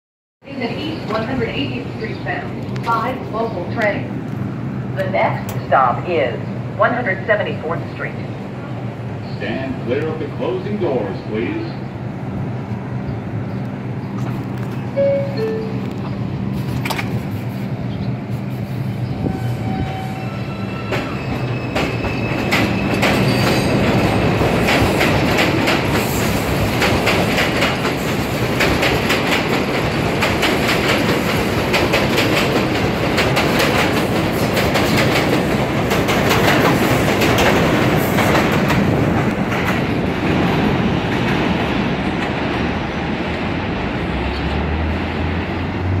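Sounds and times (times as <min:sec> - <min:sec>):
train wheels clattering on rails: 0:19.2 - 0:43.6.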